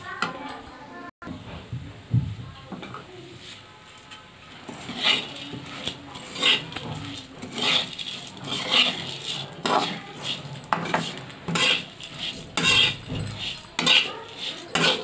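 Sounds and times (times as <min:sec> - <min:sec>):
spatula scraping rice in a pan: 0:03.3 - 0:15.0.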